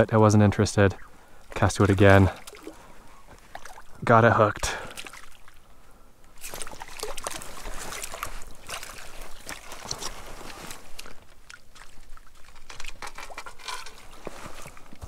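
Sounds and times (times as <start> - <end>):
water splashing from landing net: 1.5 - 3.9, 4.7 - 5.6, 6.4 - 15.0.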